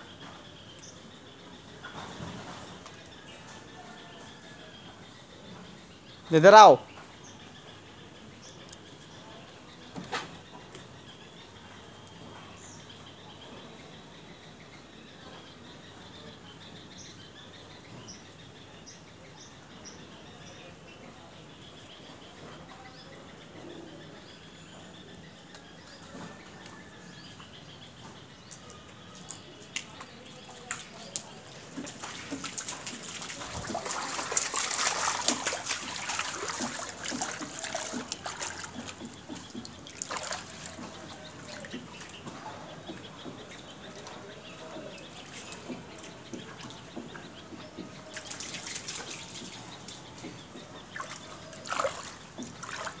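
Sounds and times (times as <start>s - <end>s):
water trickling and splashing: 24.0s - 53.0s.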